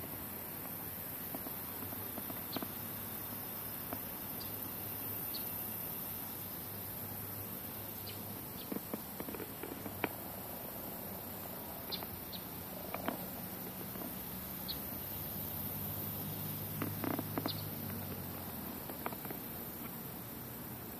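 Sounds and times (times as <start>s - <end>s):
light clicks and ticks: 12.9s - 14.2s.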